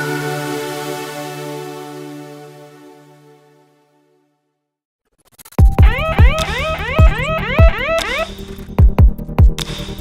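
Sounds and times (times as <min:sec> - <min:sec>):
held music chord: 0:00.0 - 0:03.6.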